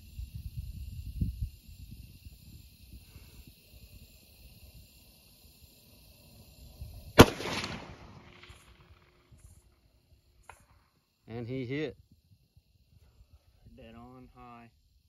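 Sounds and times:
rifle shot: 7.2 - 9.1.

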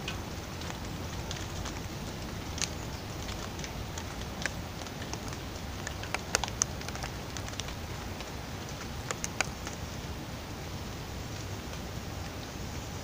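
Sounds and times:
water drops ticking: 0.0 - 9.8
low background noise: 0.0 - 13.0.

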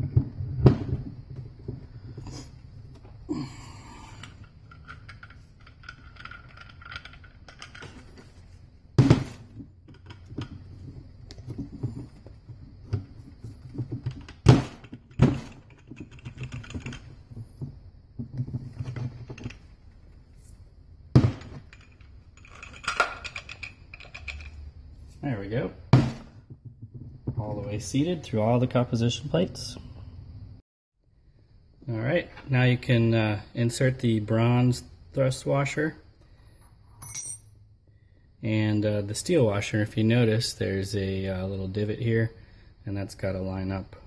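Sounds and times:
metallic clicks and rattles: 4.2 - 8.4, 13.7 - 17.4, 21.4 - 24.6.

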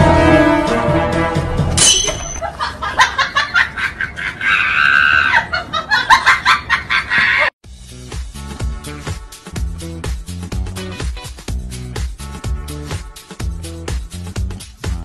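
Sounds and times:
person laughing: 2.4 - 7.5
high-pitched squeal of laughter: 3.5 - 7.5.

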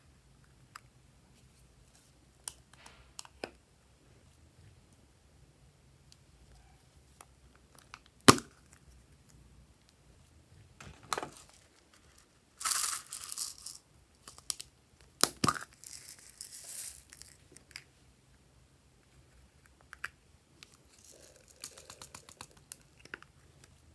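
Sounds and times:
sprinkles rattling out of container: 11.3 - 14.4, 15.7 - 17.4, 20.9 - 22.6.

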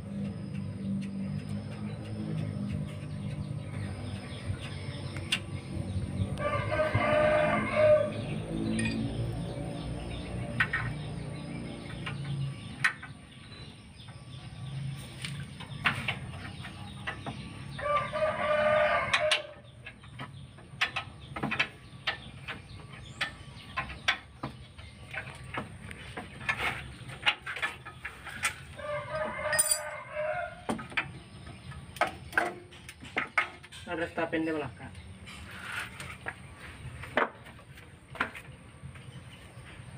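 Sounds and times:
rooster crowing: 6.4 - 8.5, 17.8 - 19.6, 28.8 - 30.7.

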